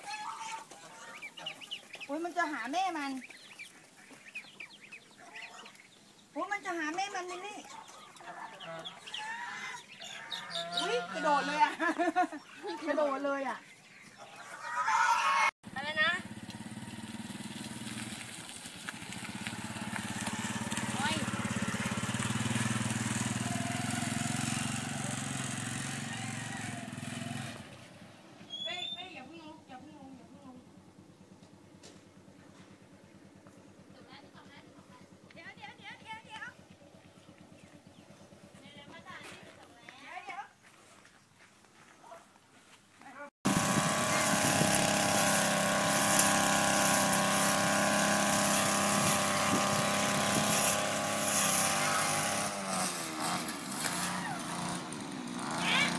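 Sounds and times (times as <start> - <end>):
brush cutter engine running: 15.7 - 28.0, 43.4 - 55.9.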